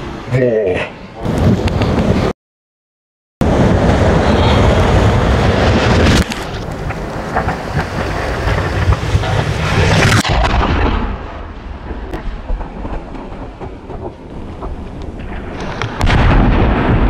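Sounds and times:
firework mortar boom: 3.4s - 17.0s
rumble of echoes: 6.6s - 17.0s.

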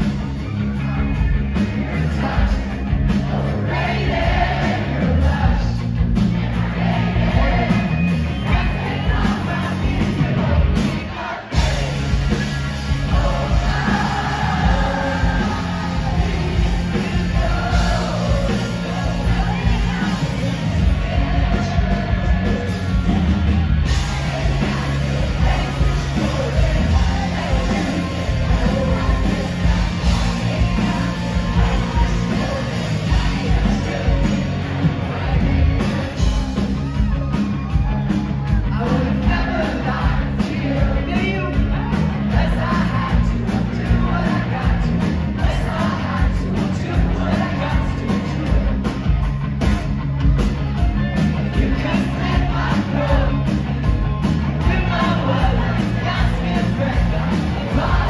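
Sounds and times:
bass guitar: 0.0s - 58.0s
driving drum kit: 0.0s - 58.0s
electric guitars: 0.0s - 58.0s
man singing and shouting: 8.4s - 48.9s, 51.2s - 58.0s.

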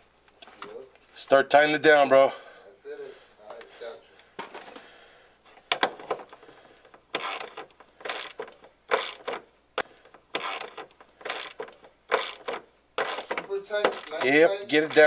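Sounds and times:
ratchet wrench clicking: 7.2s - 9.4s, 10.4s - 14.3s.

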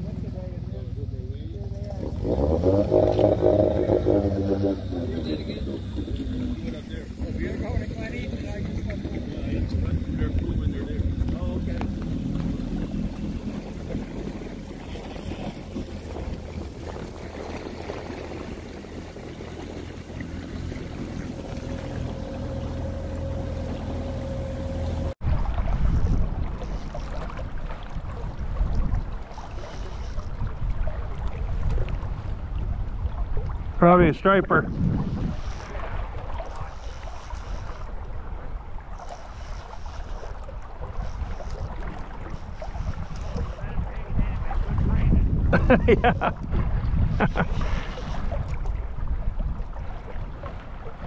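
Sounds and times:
outboard motor humming: 0.0s - 51.0s
water noise: 0.0s - 51.0s
wind noise: 2.0s - 33.8s, 34.4s - 51.0s
faint high whine: 18.6s - 25.2s.

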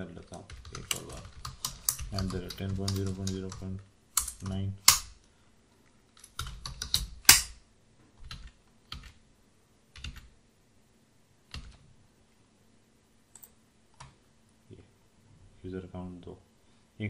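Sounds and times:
keyboard keystrokes: 0.3s - 5.0s.

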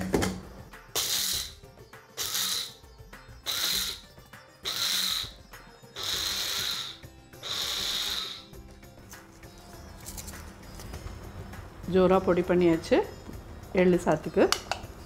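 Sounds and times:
mixer grinder motor whining: 3.4s - 5.4s.

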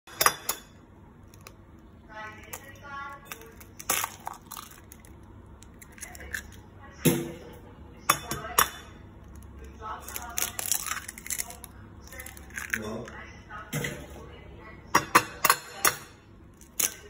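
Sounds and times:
eggshell cracking on bowl: 1.2s - 6.6s, 9.2s - 13.2s, 16.5s - 17.0s.

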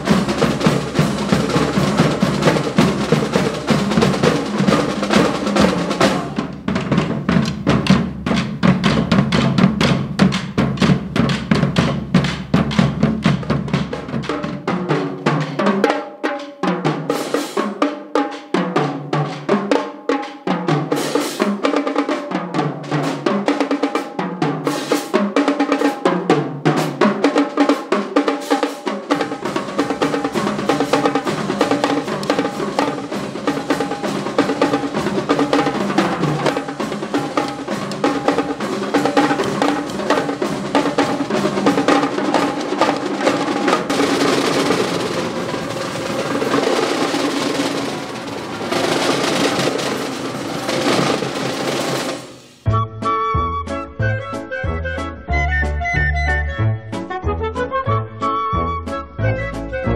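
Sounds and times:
tenor drum strokes: 0.0s - 15.9s, 26.7s - 52.7s
snare drums: 0.0s - 52.7s.

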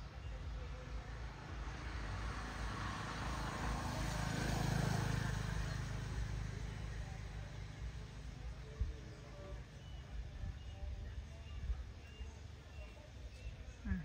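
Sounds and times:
vehicle engine passing by: 0.0s - 14.0s.

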